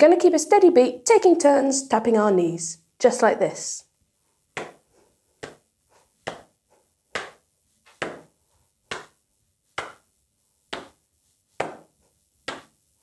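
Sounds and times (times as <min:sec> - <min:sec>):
hands patting knees: 0:04.4 - 0:13.0.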